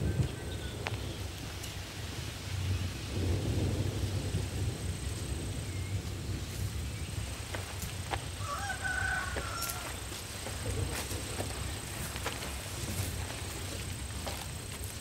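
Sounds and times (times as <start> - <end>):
steady low rumble: 0.0 - 15.0
rooster crowing: 8.3 - 10.6.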